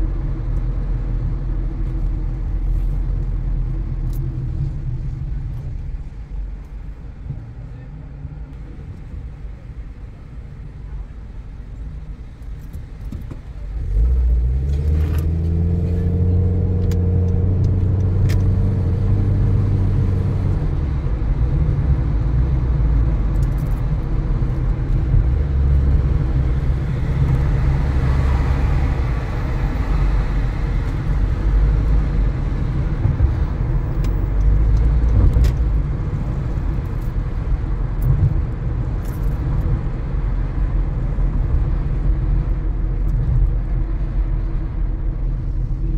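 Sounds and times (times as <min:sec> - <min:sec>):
road and tyre rumble: 0:00.0 - 0:45.9
car engine revving: 0:13.8 - 0:43.8.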